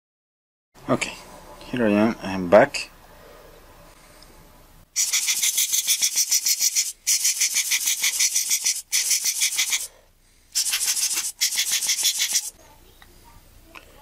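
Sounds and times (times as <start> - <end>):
hand air blower puffs: 5.0 - 9.9, 10.5 - 12.5.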